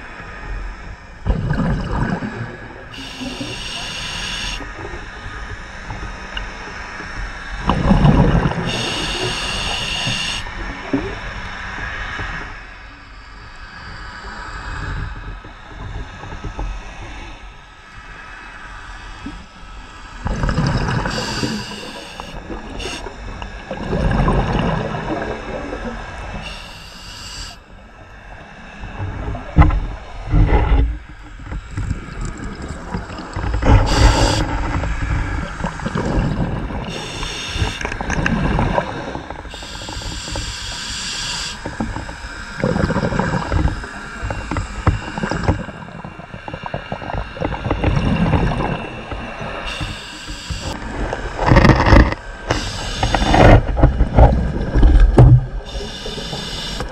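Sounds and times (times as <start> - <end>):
exhaled bubbles rumbling: 0.0 - 12.4, 20.1 - 28.1, 28.8 - 56.9
regulator hissing inhalation: 2.9 - 4.6, 8.7 - 10.5, 21.0 - 23.1, 26.4 - 27.6, 33.8 - 34.5, 36.9 - 38.0, 39.5 - 41.7, 49.7 - 50.8, 52.5 - 53.6, 55.6 - 56.9.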